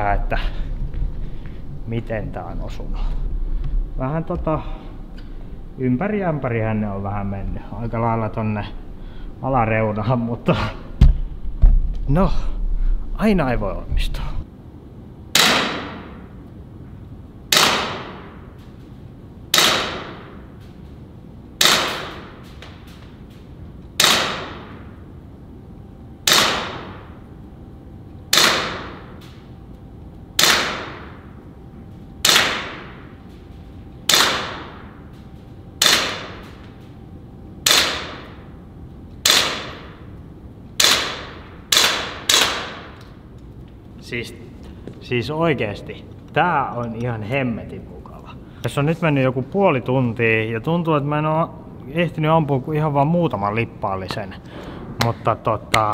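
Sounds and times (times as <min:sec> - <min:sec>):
air pistol shots: 0:15.3 - 0:16.2, 0:17.5 - 0:18.5, 0:19.5 - 0:20.5, 0:21.6 - 0:22.9, 0:24.0 - 0:24.9, 0:26.2 - 0:27.2, 0:28.3 - 0:29.4, 0:30.4 - 0:31.3, 0:32.2 - 0:33.2, 0:34.0 - 0:35.0, 0:35.8 - 0:36.6, 0:37.6 - 0:38.5, 0:39.2 - 0:40.1, 0:40.8 - 0:43.0.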